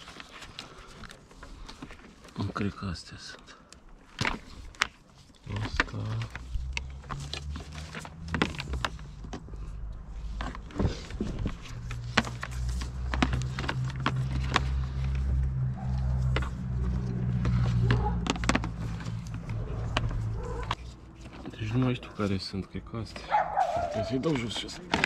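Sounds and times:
parts clicking and knocking: 3.7s - 23.3s.

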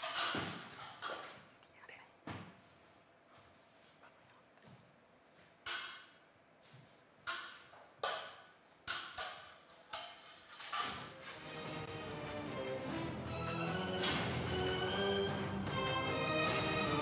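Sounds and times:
music: 11.0s - 17.0s.

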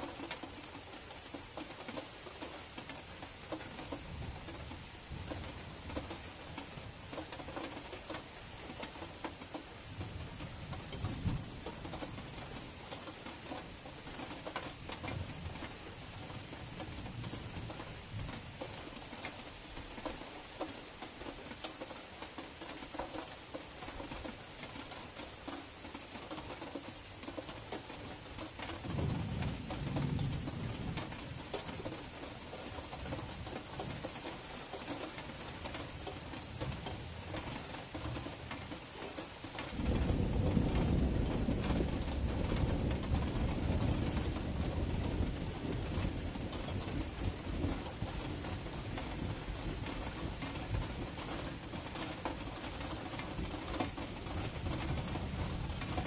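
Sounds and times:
rain hiss: 0.0s - 56.0s
thunder rumbling: 39.7s - 48.1s.

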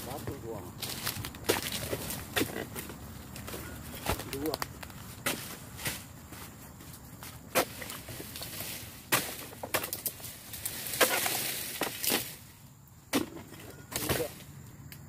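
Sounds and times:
palm fronds rustling: 0.0s - 14.7s
chisel chopping palm fronds: 0.8s - 2.9s, 5.2s - 6.1s, 7.5s - 12.5s, 13.1s - 14.5s.

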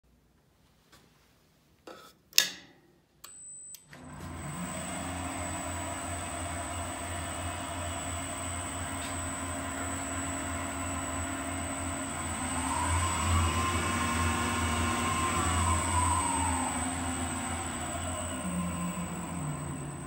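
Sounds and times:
motor whine: 4.0s - 20.0s
wood lathe humming: 4.0s - 20.0s.

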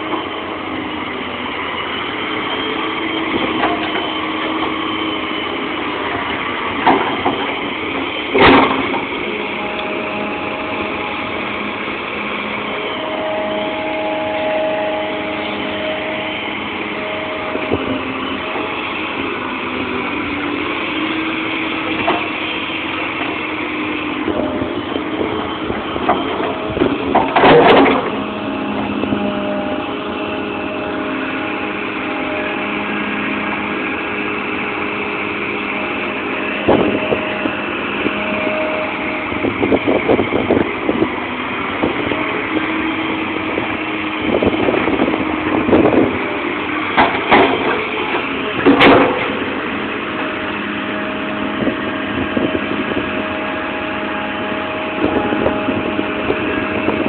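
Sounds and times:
excavator diesel engine under load: 0.0s - 57.0s
loud metal clanks: 46.9s - 49.5s.

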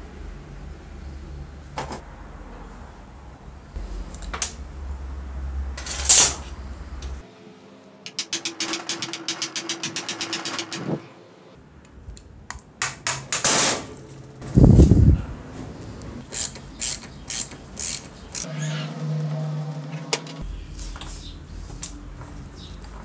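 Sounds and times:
metal parts scraping: 5.8s - 6.5s
rapid ratchet-like clicking: 8.1s - 11.0s, 16.2s - 20.4s.

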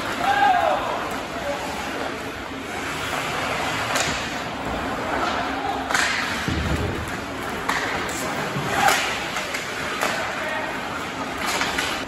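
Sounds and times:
hockey stick clacking puck: 3.8s - 4.4s, 5.2s - 10.5s, 11.4s - 12.0s.

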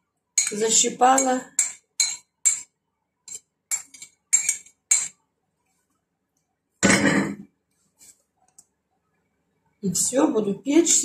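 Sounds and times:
spoon clattering: 0.4s - 5.2s
spoon tapping bowl edge: 3.3s - 5.2s.

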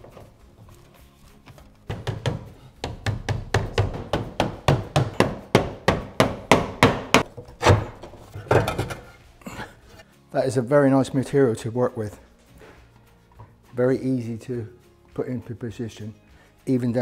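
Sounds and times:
tool tapping lead on roof: 1.9s - 7.8s.

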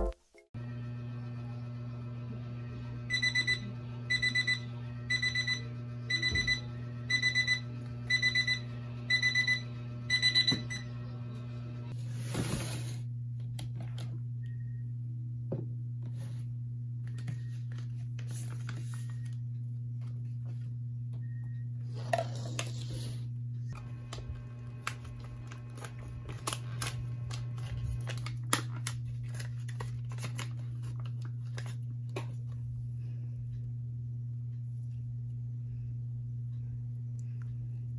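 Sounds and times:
electronic timer alarm beeping: 3.1s - 11.0s.

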